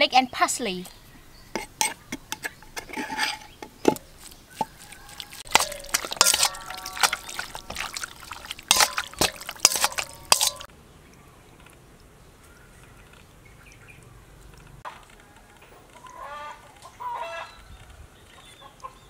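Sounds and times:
meat squelching in marinade: 1.6s - 10.7s
metal spoon scraping a bowl: 1.6s - 10.7s
metal bowl ringing: 5.4s - 10.7s.

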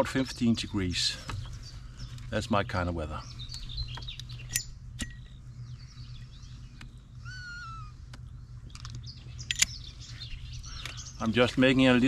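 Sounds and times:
low steady hum: 0.0s - 12.0s
bird wavering call: 3.3s - 11.2s
sharp clicks: 6.7s - 7.0s, 8.1s - 9.8s.

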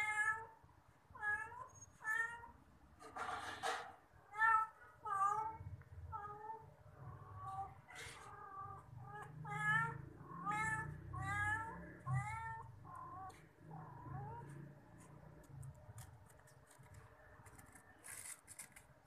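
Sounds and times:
cats meowing: 0.0s - 0.6s, 1.2s - 2.6s, 4.2s - 14.8s
soft clicks and rustles: 14.9s - 19.0s.

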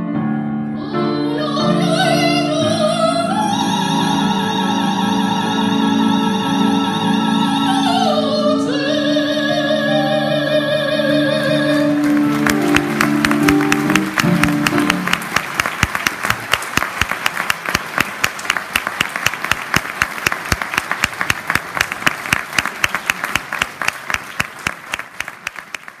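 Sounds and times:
song for voice and piano: 0.0s - 15.9s
audience applauding: 11.8s - 26.0s.

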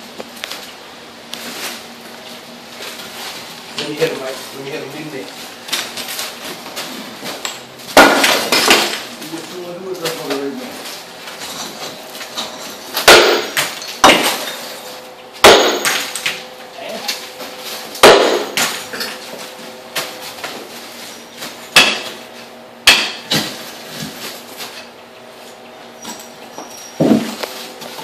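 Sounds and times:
sledgehammer striking concrete: 7.9s - 9.0s, 13.0s - 14.5s, 15.4s - 16.1s, 18.0s - 18.8s, 21.8s - 22.2s, 22.8s - 23.5s.

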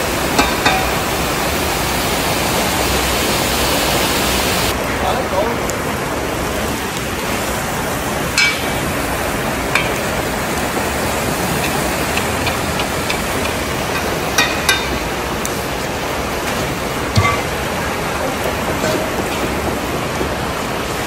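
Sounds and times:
vegetables sizzling in a pot: 0.0s - 21.0s
metal skimmer clinking on pot: 0.4s - 1.0s, 8.4s - 8.9s, 9.7s - 10.2s, 11.6s - 15.1s, 17.1s - 17.8s.

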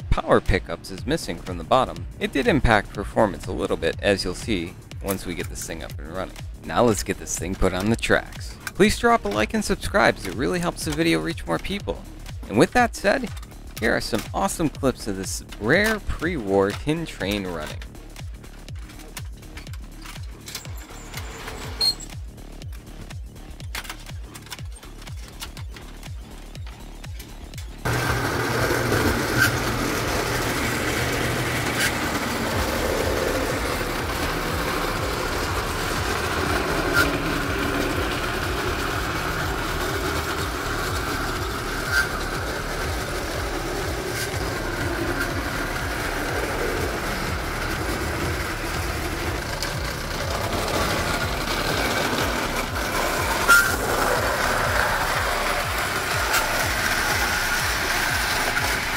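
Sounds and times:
wheels rumbling on metal rails: 0.0s - 58.9s
toy train motor whirring: 17.1s - 58.9s.

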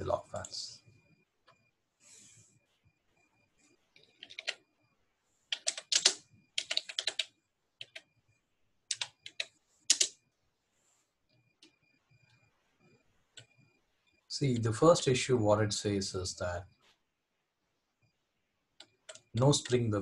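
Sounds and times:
keyboard typing: 3.9s - 4.7s, 5.5s - 8.1s, 8.9s - 10.2s, 18.8s - 19.9s.

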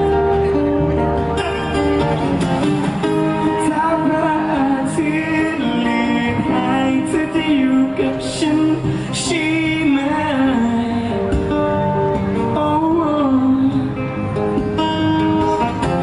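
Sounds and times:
acoustic guitar strumming: 0.0s - 16.0s
man singing into a microphone: 3.1s - 14.4s.

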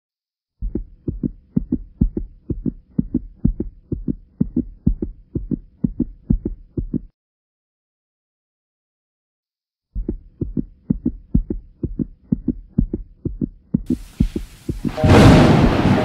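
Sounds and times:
heartbeat thumps: 0.6s - 7.1s, 10.0s - 16.0s.

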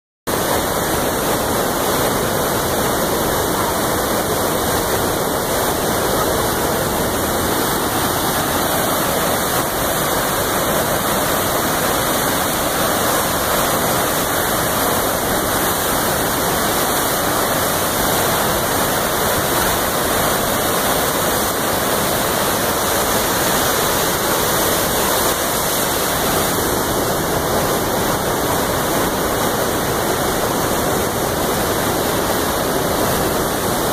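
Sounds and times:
roar of rushing floodwater: 0.3s - 33.9s.

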